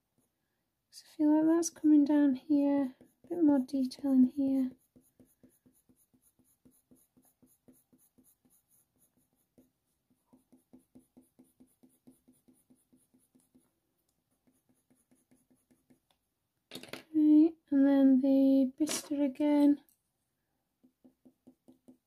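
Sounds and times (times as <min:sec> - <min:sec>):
coloured pencil scratching on paper: 0:00.1 - 0:00.4, 0:01.8 - 0:16.1.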